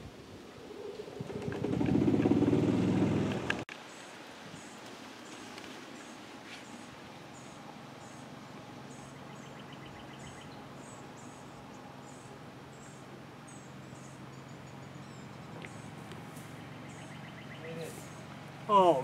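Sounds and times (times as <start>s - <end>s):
steady hiss: 3.7s - 9.2s, 17.6s - 19.0s.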